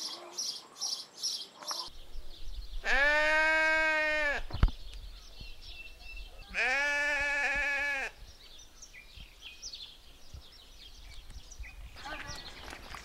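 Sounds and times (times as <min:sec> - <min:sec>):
sheep bleating: 0:02.8 - 0:04.4, 0:06.5 - 0:08.1.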